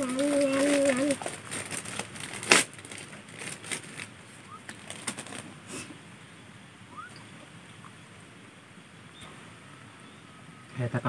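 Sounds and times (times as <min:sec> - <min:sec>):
plastic snack bag rustling: 0:00.0 - 0:05.6
bird chirp: 0:06.2 - 0:08.2, 0:09.0 - 0:10.8.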